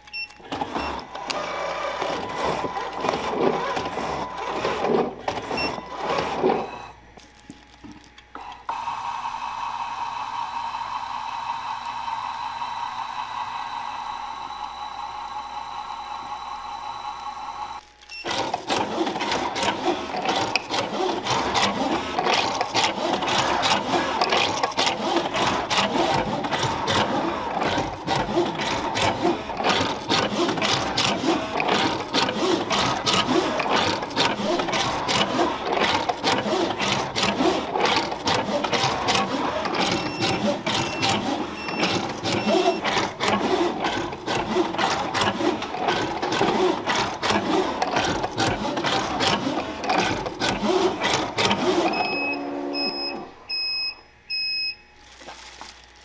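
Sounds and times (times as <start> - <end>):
machine clattering with rapid ticks: 18.2 - 52.0.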